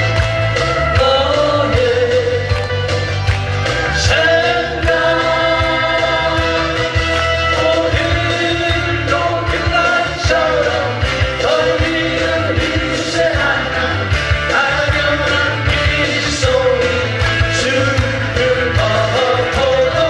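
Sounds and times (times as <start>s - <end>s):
person singing: 0.6s - 3.0s, 3.7s - 20.0s.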